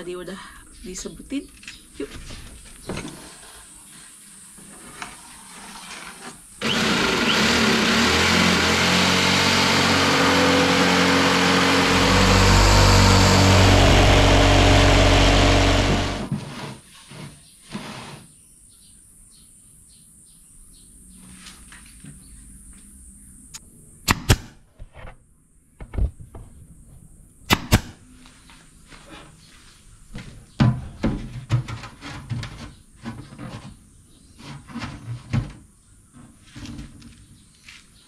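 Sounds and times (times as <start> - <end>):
jigsaw sawing plywood: 6.6 - 16.6.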